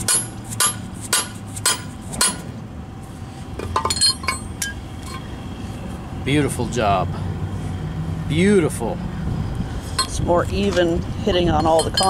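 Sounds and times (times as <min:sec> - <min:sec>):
mallet striking steel bar: 0:00.0 - 0:02.5.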